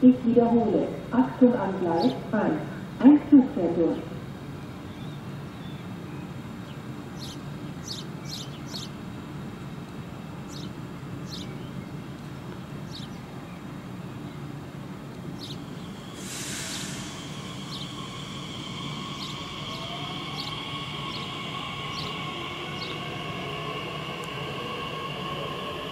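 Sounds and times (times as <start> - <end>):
electric train whine: 0.0 - 25.9
small birds chirping: 4.8 - 9.0, 10.5 - 14.6, 15.3 - 16.1, 16.7 - 24.0
steady low rumble: 9.0 - 25.9
brief hiss: 16.1 - 17.9.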